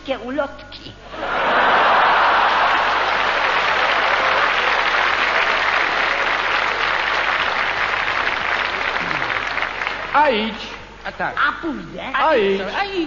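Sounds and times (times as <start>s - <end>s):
audience applauding: 1.4s - 10.2s.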